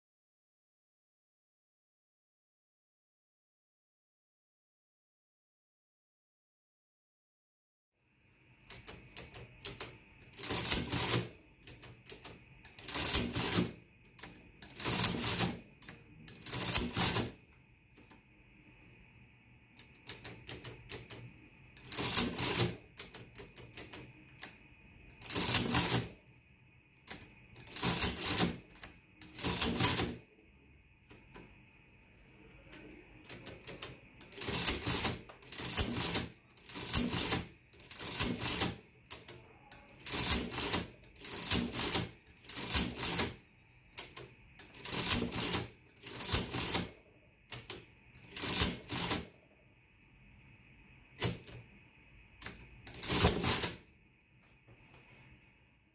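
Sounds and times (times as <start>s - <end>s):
adding machine keys clicking: 8.6s - 18.2s, 19.8s - 26.1s, 27.0s - 30.2s, 32.6s - 49.3s, 52.3s - 53.8s.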